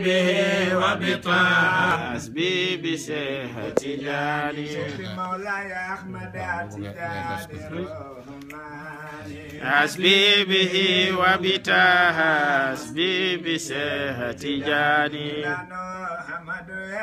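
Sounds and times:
man chanting ornamented melody: 4.6 - 8.2.

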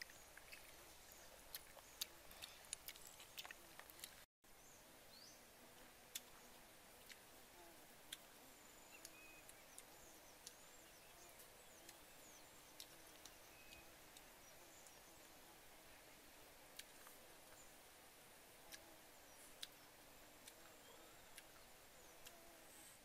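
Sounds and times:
faint bird chirps: 8.1 - 17.8, 18.6 - 23.0.

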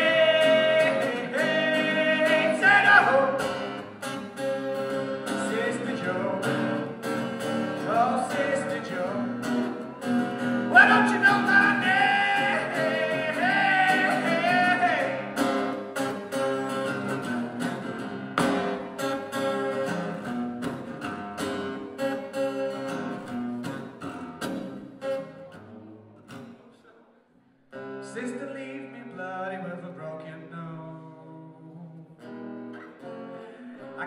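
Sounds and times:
man singing: 0.0 - 3.7, 5.2 - 6.9, 7.7 - 15.5, 28.0 - 32.2
acoustic guitar strumming: 0.0 - 26.7, 27.7 - 34.0.

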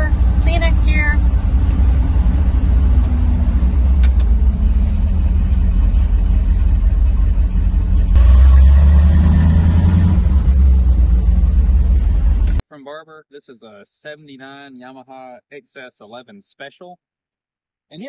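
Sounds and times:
engine and road noise rumble: 0.0 - 12.6.

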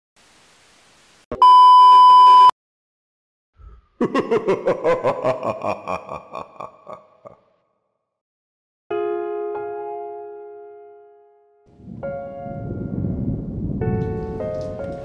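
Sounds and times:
faint static hiss: 0.2 - 1.3
high-pitched test-tone beep: 1.3 - 2.5.

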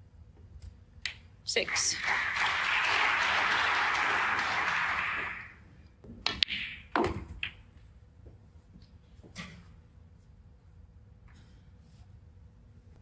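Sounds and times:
audience applauding: 1.6 - 5.6.

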